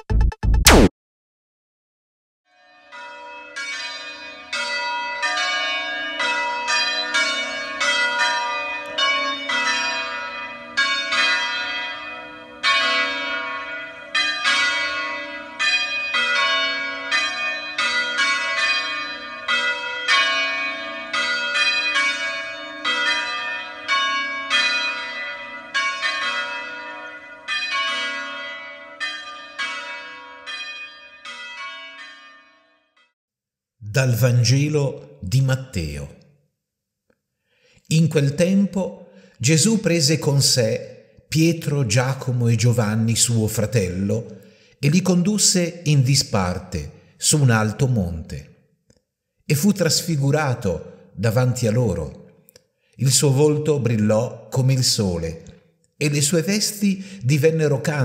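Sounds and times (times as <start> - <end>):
church bells ringing: 2.5 - 33.0, 38.2 - 48.4, 49.6 - 52.2, 53.0 - 55.4.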